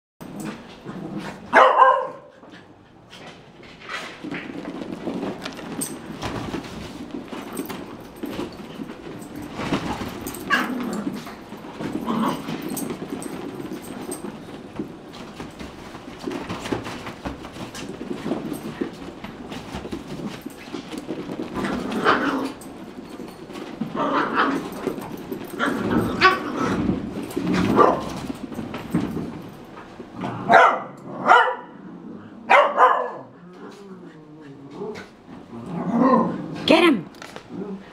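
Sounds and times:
small dogs playing: 0.2s - 37.9s
small dog barking: 1.5s - 2.3s, 30.5s - 31.7s, 32.5s - 33.3s.

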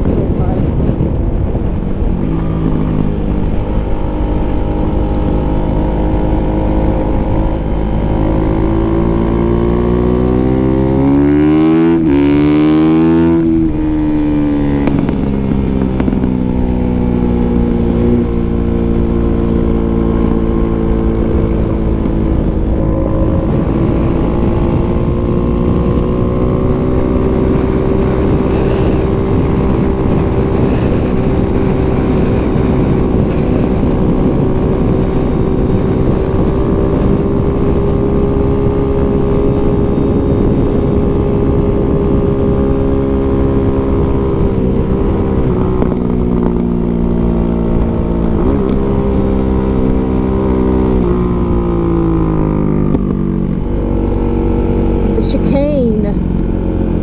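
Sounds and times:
dirt bike engine revving: 3.5s - 16.3s, 22.3s - 33.5s.

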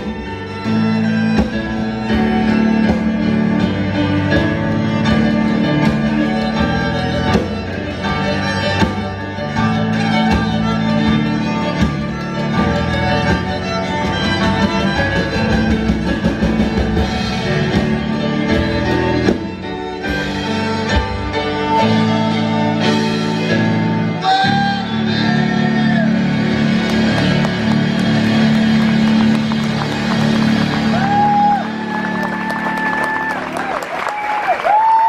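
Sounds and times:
fiddle playing tune: 0.0s - 34.0s
drum beat: 10.0s - 20.4s.

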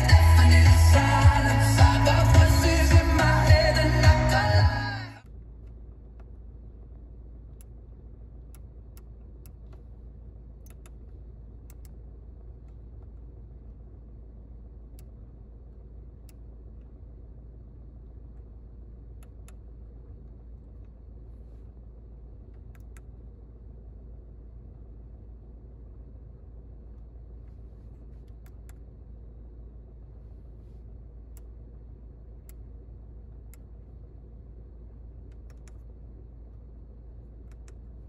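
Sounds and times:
car cabin hum: 0.0s - 38.0s
control knob clicks: 10.6s - 11.1s, 22.5s - 23.1s, 35.2s - 35.9s, 37.4s - 38.0s.

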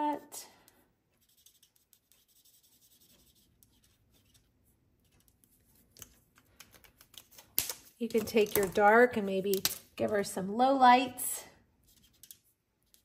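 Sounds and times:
marker tip scratching on card: 1.2s - 4.5s.

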